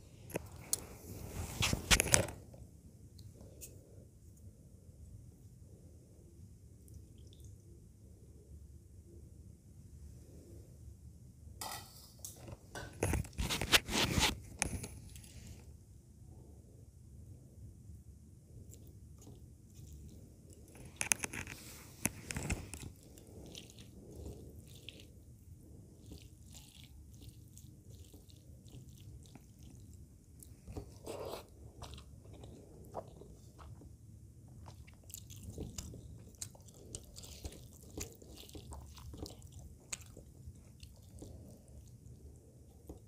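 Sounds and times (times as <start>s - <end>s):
chewing with wet mouth sounds: 18.5s - 43.0s.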